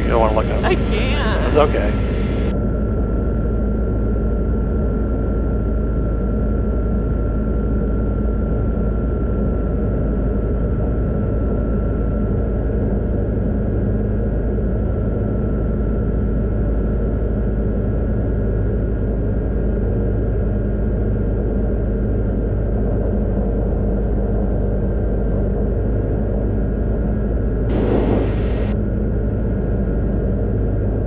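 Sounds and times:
thin steady whine: 0.0s - 12.2s, 27.7s - 31.0s
aircraft engine and propeller rumble: 0.0s - 31.0s
wind rush: 27.7s - 28.8s.

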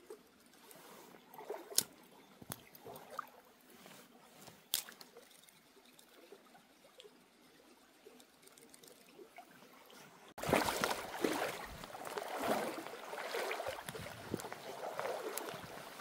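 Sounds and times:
small stream trickling: 0.0s - 16.0s
rushing splashing water: 10.4s - 16.0s.

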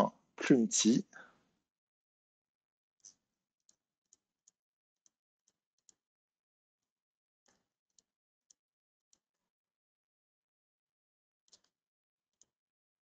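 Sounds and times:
computer mouse clicks: 11.5s - 11.8s.

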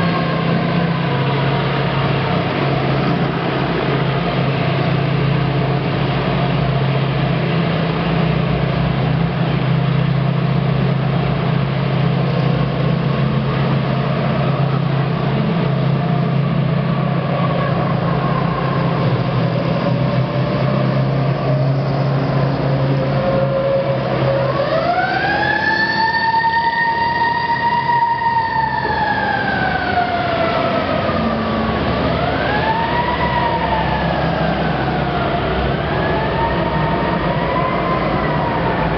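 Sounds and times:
vehicle engines driving past: 0.0s - 38.9s
siren wailing: 12.4s - 38.9s.

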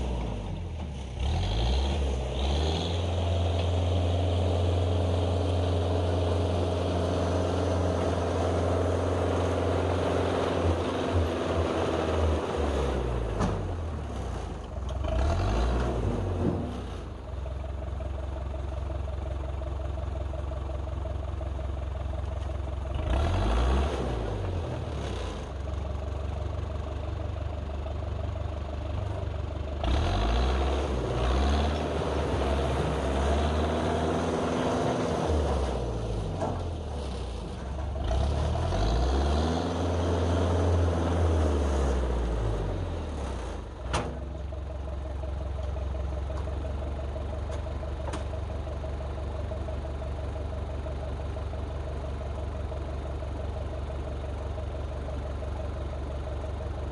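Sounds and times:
diesel engine revving: 0.0s - 18.5s, 22.8s - 26.2s, 28.9s - 50.0s.

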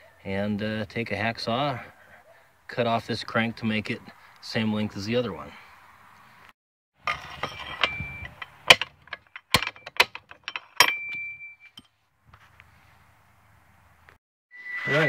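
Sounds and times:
metal wrench clanking: 7.0s - 11.9s
sharp metallic knocks with ring: 7.5s - 11.9s.

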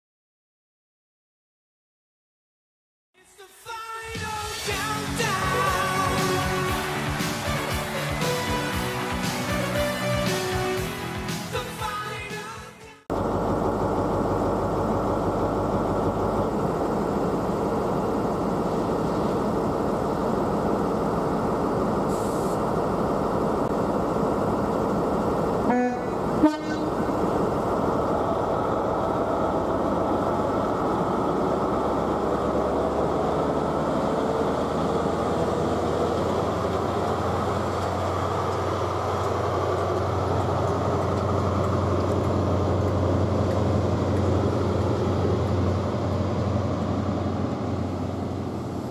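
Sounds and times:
diesel train engine running: 4.1s - 48.9s
two-tone train horn: 25.7s - 27.1s.

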